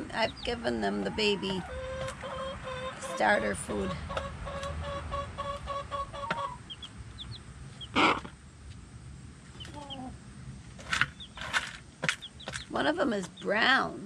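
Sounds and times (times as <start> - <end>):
hen clucking: 0.0 - 8.4, 9.5 - 10.2
chicks peeping: 0.0 - 8.8, 9.4 - 14.0.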